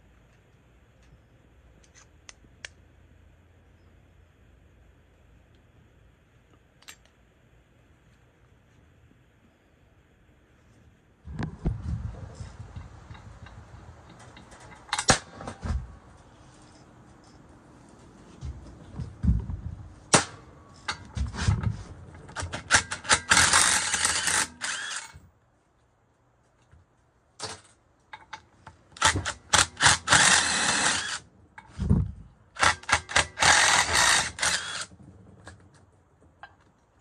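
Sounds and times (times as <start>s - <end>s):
power driver whirring: 23.2s - 25.2s, 29.0s - 31.2s, 32.6s - 34.9s.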